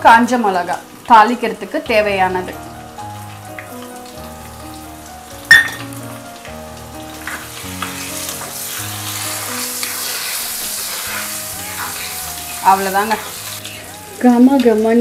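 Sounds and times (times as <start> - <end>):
hot oil sizzling: 0.0 - 15.0
soft background music: 0.0 - 15.0
sharp oil pop: 5.5 - 6.0.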